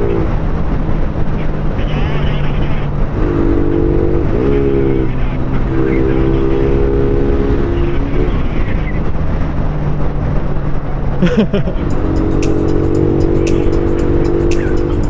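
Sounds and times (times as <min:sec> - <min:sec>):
wind rushing over microphone: 0:00.0 - 0:15.0
motorcycle engine running: 0:11.5 - 0:15.0.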